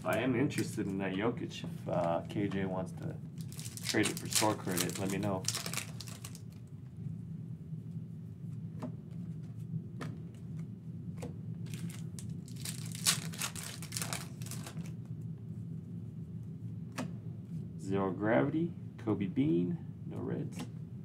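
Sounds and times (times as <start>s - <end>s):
steady low hum: 0.0s - 21.0s
foil wrappers crinkling and tearing: 3.4s - 6.6s, 11.7s - 14.9s.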